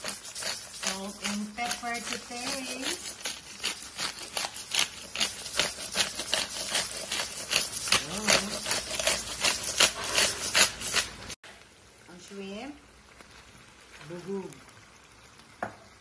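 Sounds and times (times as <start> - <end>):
spatula scraping frying pan: 0.0 - 11.4.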